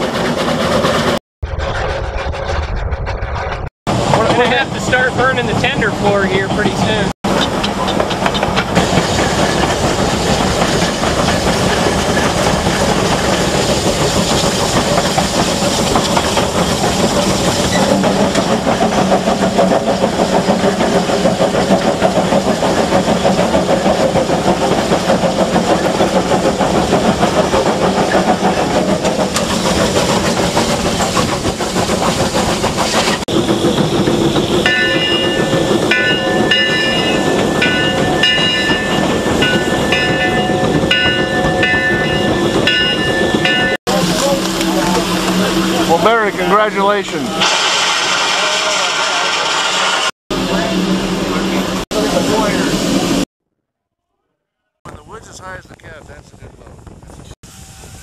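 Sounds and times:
rail clatter: 0.0 - 53.3
steam locomotive exhaust: 0.0 - 53.3, 54.9 - 58.0
steam hiss: 47.2 - 50.1, 57.4 - 58.0.

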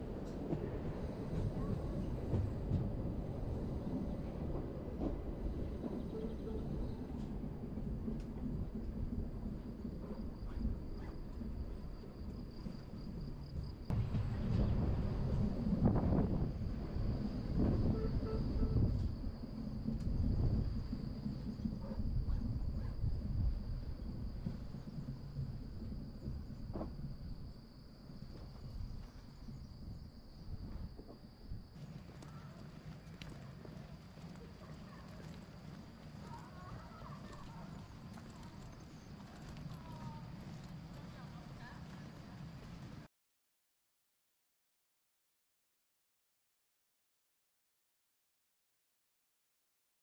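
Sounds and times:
electric train rumbling: 0.0 - 43.1
faint clicks: 31.8 - 42.9.

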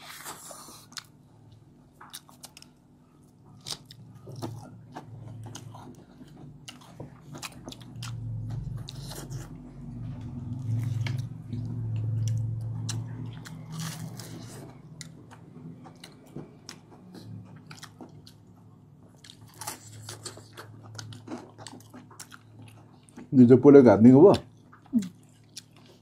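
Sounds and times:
low hum: 2.6 - 21.6
chewing and lip smacks: 10.3 - 23.3, 24.6 - 26.0.

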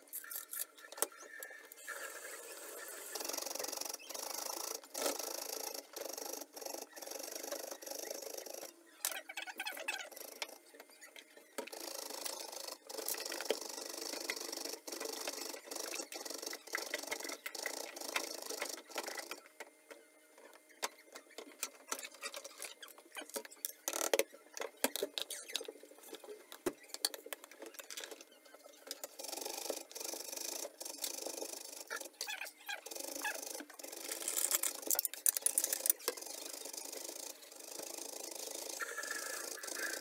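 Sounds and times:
taps and scrapes: 13.0 - 29.8.

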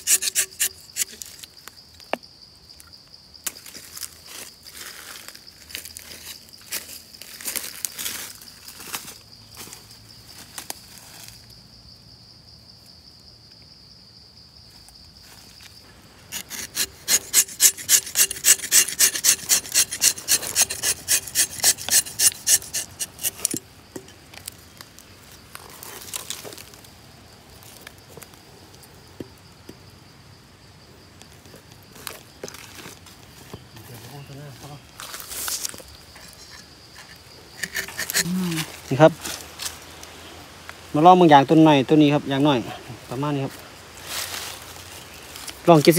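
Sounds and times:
knife rasping bark: 0.0 - 1.3, 16.3 - 23.6, 36.2 - 38.7.

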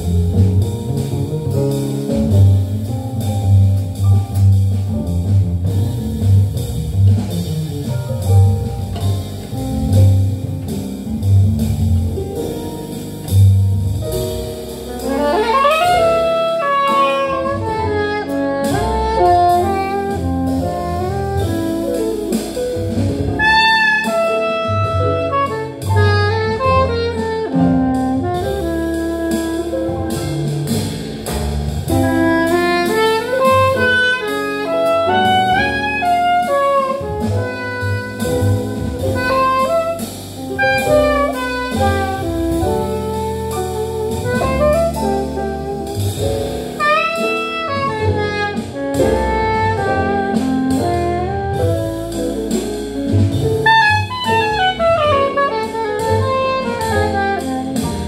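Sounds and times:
drum kit: 0.0 - 58.0
grand piano: 0.0 - 58.0
upright double bass: 0.0 - 58.0
soprano saxophone melody: 14.9 - 22.3, 23.4 - 28.8, 32.2 - 40.0, 40.6 - 46.0, 46.8 - 52.1, 53.7 - 58.0.

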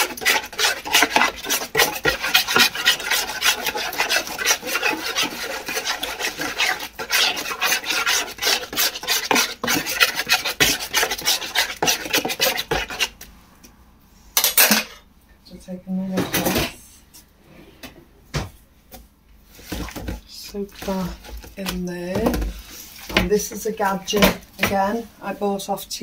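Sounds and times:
paste scraping in container: 0.0 - 13.2.

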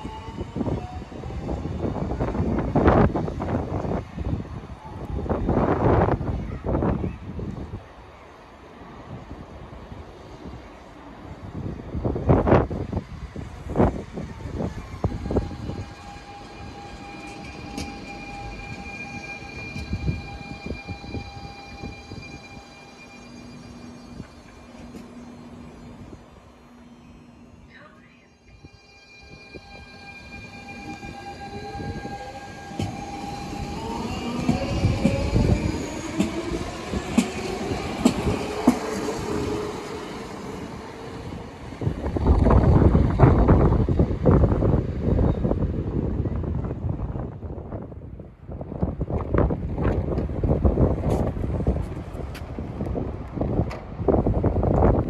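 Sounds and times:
electric train whine: 0.0 - 55.0
train clunks: 14.6 - 22.7, 29.6 - 40.0, 48.8 - 54.0.

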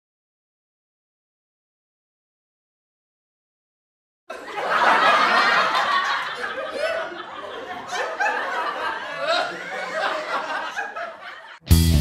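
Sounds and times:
laughter: 4.3 - 11.6.

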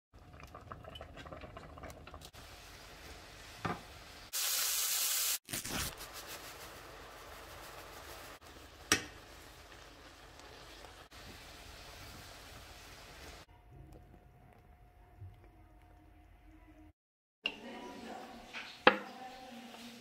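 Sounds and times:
steak sizzling in a frying pan: 2.4 - 13.5.

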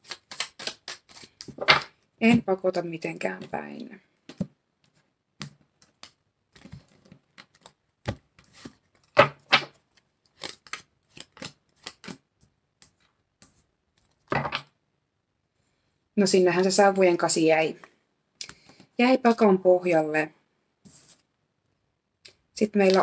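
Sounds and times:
cards shuffled and dealt: 0.0 - 2.4, 4.2 - 14.7.

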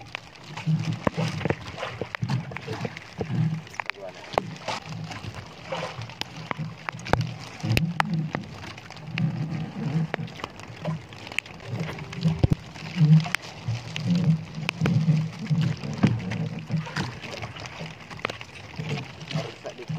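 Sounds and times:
water slapping at hull: 0.0 - 19.9.

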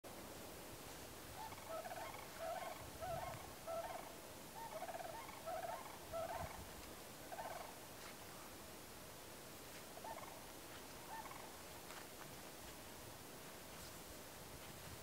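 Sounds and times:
faint background hiss: 0.1 - 15.0
rolling pulsed animal calls: 1.4 - 6.6, 7.3 - 7.8, 10.0 - 10.4, 11.1 - 11.6.

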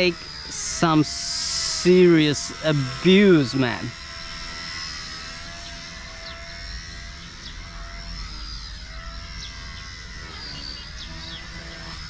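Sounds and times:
toy helicopter rotor whine: 0.0 - 12.0.

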